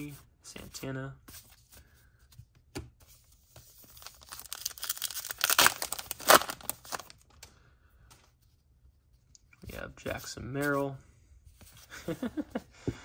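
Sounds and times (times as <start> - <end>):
wrapper tearing and crinkling: 4.0 - 7.3.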